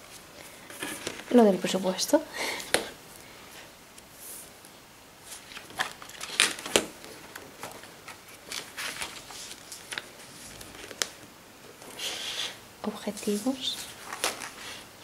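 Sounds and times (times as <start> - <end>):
paper pages turning: 5.2 - 11.3, 13.8 - 14.8.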